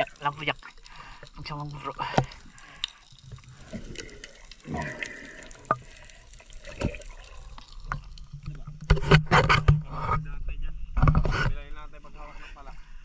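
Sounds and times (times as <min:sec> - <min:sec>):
water splashing and sloshing: 0:00.0 - 0:09.8.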